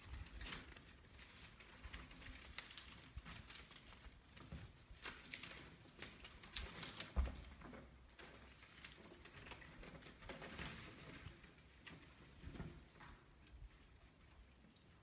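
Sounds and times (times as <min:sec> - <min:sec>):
light clicks and rustles: 0:00.0 - 0:15.0.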